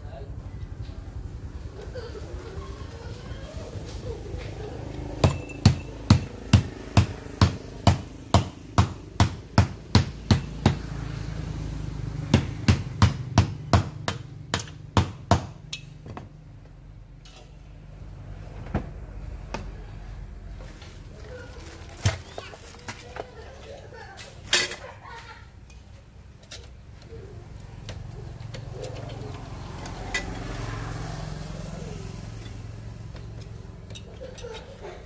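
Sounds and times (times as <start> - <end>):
sharp hammer-like knocks: 5.2 - 10.8.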